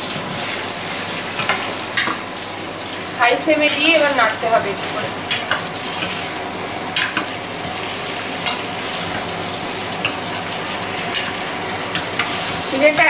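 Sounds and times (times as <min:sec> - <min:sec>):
chicken sizzling in a pot: 0:00.0 - 0:13.0.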